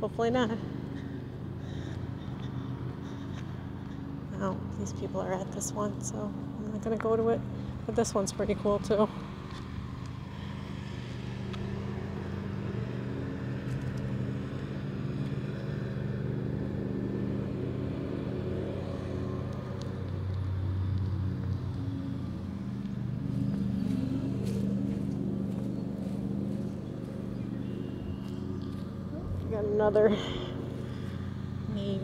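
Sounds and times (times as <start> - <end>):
lawn mower engine running: 8.4 - 32.0.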